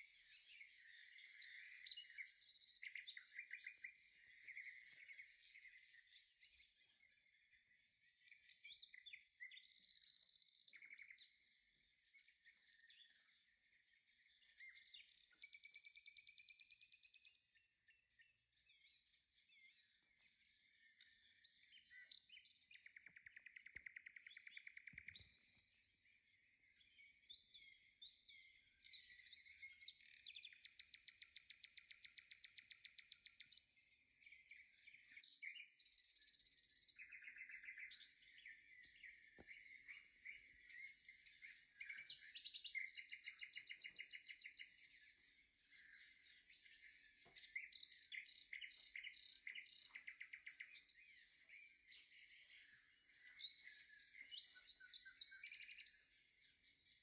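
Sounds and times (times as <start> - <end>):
small bird trilling and chirping: 21.9 - 25.4.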